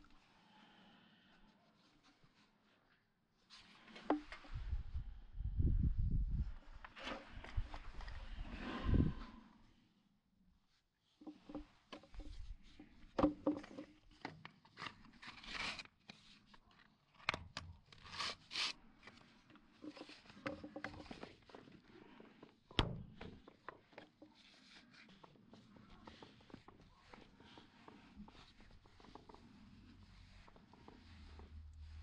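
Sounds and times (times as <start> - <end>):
plastic pipe fittings clicking: 11.2 - 15.0, 17.2 - 31.5.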